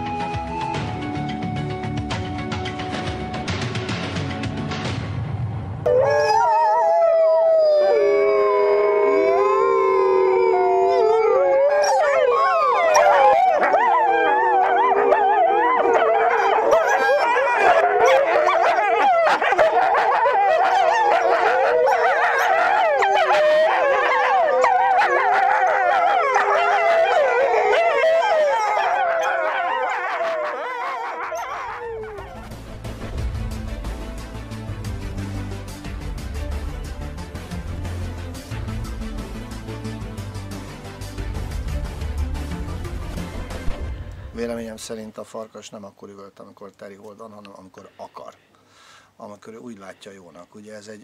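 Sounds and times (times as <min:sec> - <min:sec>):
wolves howling and yipping: 0:05.9 - 0:32.6.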